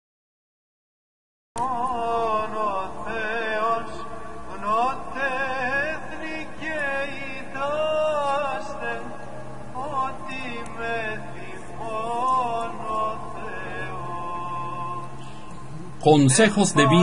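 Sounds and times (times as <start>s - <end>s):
man chanting slow melody: 15.9s - 17.0s.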